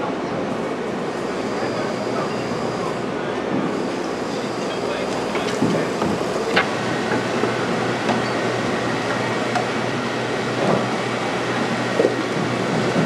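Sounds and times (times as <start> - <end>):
machinery humming: 0.0 - 13.0
sharp knocks and clanks: 5.4 - 7.2.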